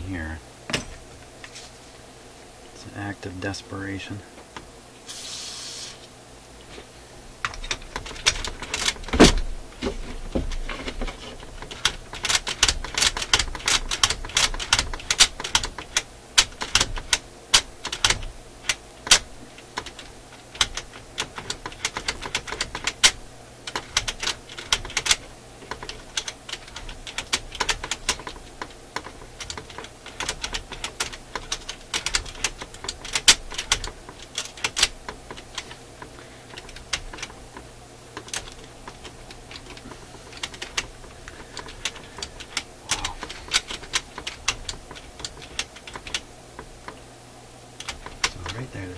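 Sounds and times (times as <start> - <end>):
metallic clicking of a mechanism: 11.0 - 37.4, 47.8 - 48.6.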